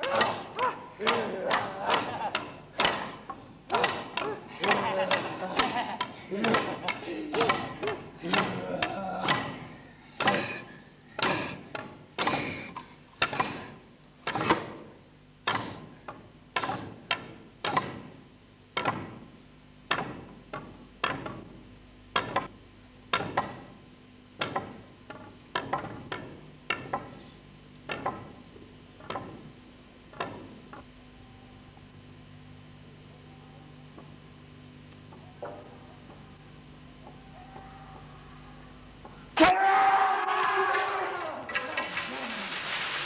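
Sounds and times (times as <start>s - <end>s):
wooden staffs knocking on floor: 1.1s - 9.5s.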